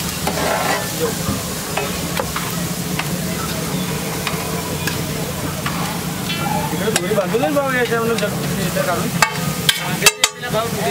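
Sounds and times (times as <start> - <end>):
eggs sizzling on a griddle: 0.0 - 10.9
metal spatula scraping: 0.2 - 1.2
spatula clicking on griddle: 9.2 - 10.5.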